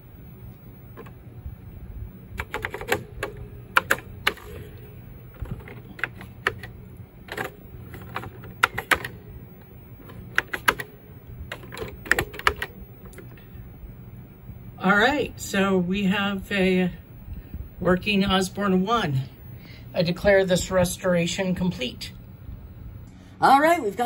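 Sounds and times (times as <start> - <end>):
low hum: 0.0 - 24.0
computer keyboard typing: 2.4 - 6.7, 7.3 - 9.2, 10.0 - 13.4.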